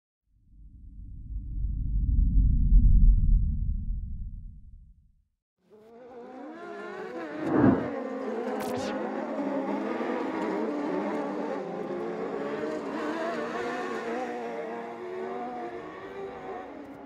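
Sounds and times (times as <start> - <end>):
racing car engines running: 7.4 - 17.0.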